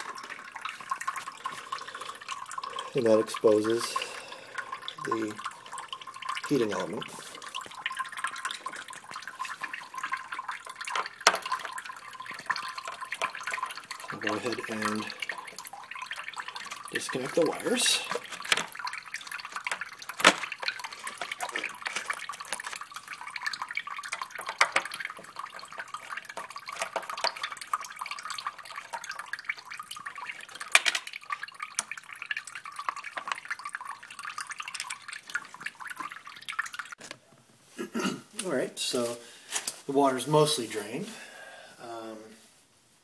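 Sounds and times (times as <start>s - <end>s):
water trickling and dripping: 0.0s - 37.1s.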